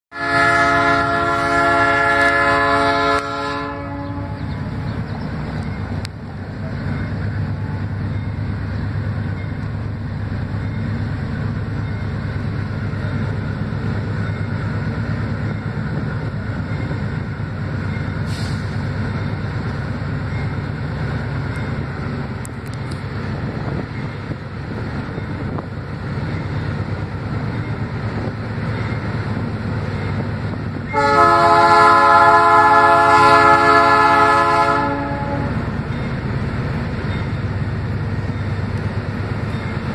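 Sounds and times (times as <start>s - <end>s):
locomotive air horn blast: 0.1s - 4.5s, 30.9s - 35.7s
locomotive engine rumble: 0.2s - 39.9s.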